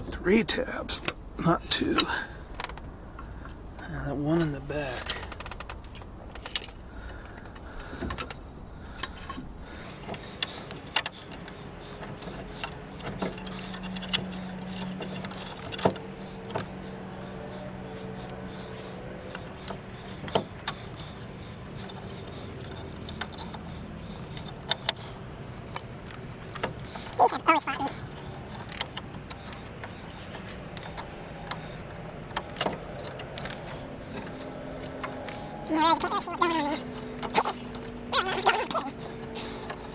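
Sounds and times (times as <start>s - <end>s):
metallic clicks and clinks: 9.9s - 27.3s.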